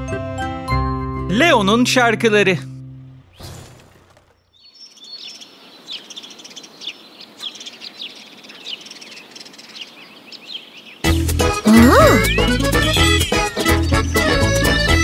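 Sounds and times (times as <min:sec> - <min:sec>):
birds chirping: 0:03.3 - 0:15.0.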